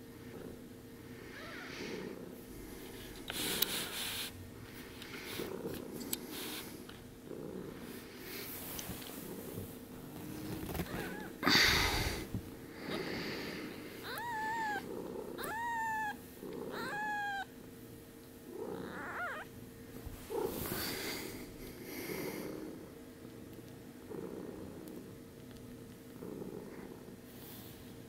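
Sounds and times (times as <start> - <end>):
rustling on a bedspread: 8.3 - 11.3
kittens mewing: 10.7 - 12.3, 12.9 - 17.6, 18.7 - 19.5.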